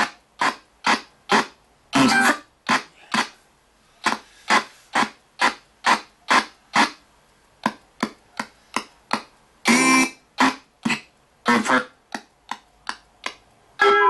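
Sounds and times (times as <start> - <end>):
chopped radio snippets: 9.1 - 12.0.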